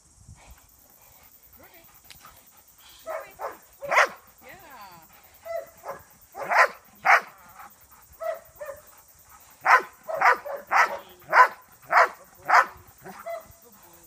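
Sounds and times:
dog barking: 0:03.1 - 0:04.2, 0:05.4 - 0:07.4, 0:08.2 - 0:08.8, 0:09.6 - 0:13.5.

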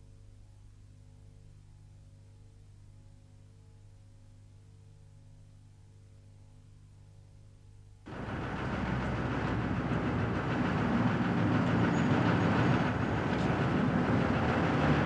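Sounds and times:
faint low hum: 0:00.0 - 0:15.0
train clattering: 0:08.1 - 0:15.0
train wheels squealing: 0:08.1 - 0:15.0.

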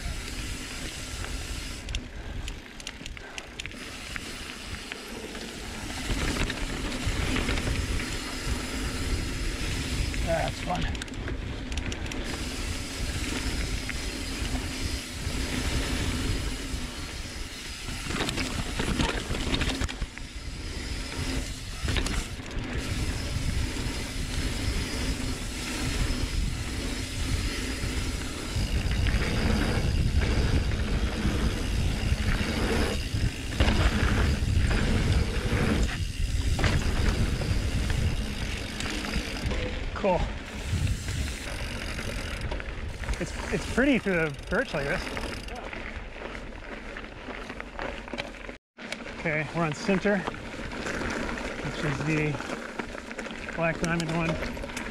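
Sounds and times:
bike tyres rolling over dirt: 0:00.0 - 0:54.9
wind rushing over microphone: 0:05.7 - 0:44.7.

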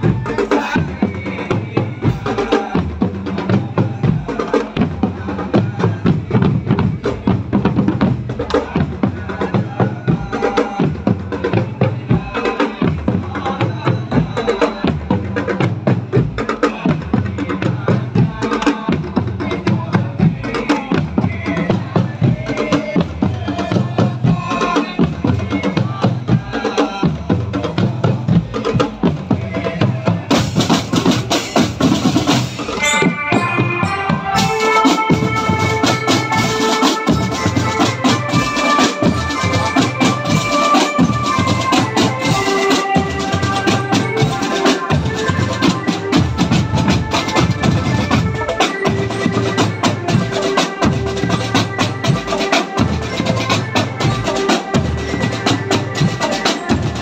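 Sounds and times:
marching drums: 0:00.0 - 0:57.0
melody with held notes: 0:32.7 - 0:57.0.

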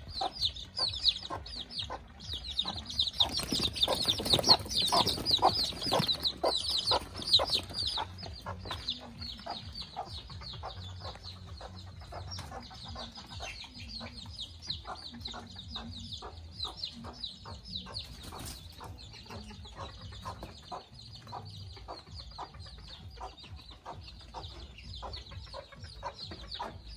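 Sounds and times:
chicken clucks: 0:00.0 - 0:26.9
chicks peeping: 0:00.0 - 0:26.9.

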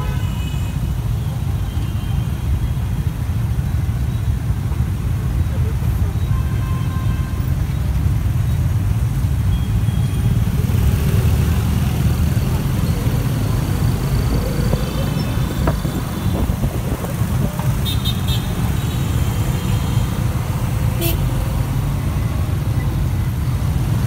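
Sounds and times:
motorbike engines rumbling: 0:00.0 - 0:24.0
road noise: 0:00.0 - 0:24.0.

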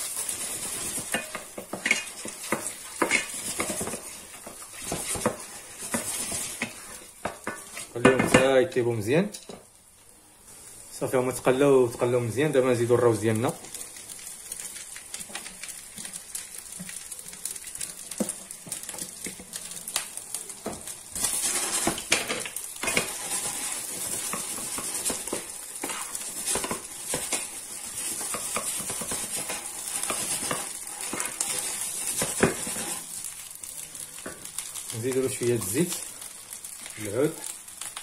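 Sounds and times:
rice sizzling in a pan: 0:00.0 - 0:38.0
spatula knocking and scraping pan: 0:00.4 - 0:08.6, 0:20.6 - 0:33.0.

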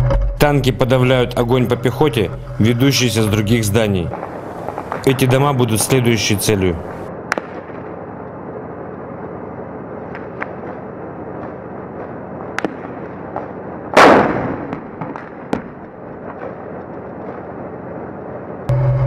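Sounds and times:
steady drone: 0:00.0 - 0:11.9, 0:18.7 - 0:19.0
gunshots: 0:04.1 - 0:08.0, 0:10.1 - 0:17.5
tank cannon boom: 0:14.0 - 0:15.8.

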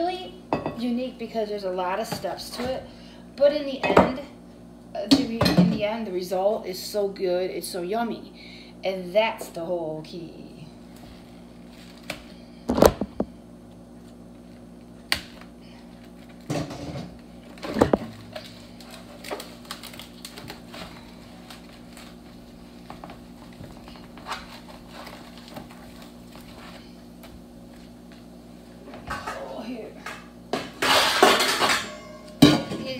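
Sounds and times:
steady low hum: 0:00.0 - 0:32.9
kitchen items knocking and clattering: 0:05.1 - 0:05.9, 0:16.4 - 0:18.6, 0:28.9 - 0:32.9.

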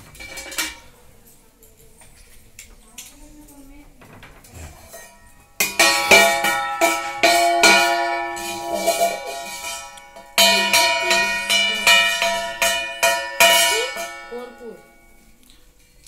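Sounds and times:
struck ringing pitched notes: 0:05.2 - 0:15.4.

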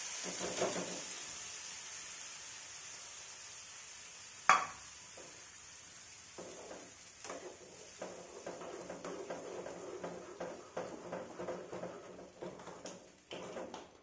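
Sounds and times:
food sizzling in a frying pan: 0:00.0 - 0:14.0
steel spoon scraping a pan: 0:06.4 - 0:13.7.

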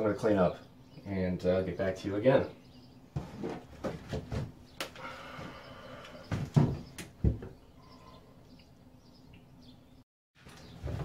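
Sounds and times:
faint bird chirps: 0:04.7 - 0:10.8
knocks and thuds on wood: 0:06.3 - 0:07.6.

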